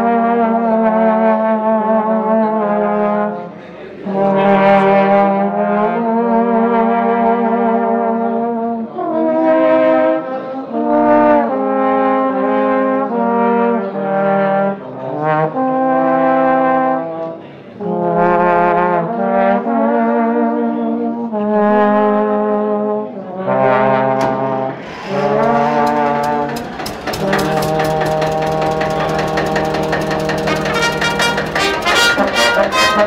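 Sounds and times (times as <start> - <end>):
trombones playing sustained chords: 0.0 - 33.0.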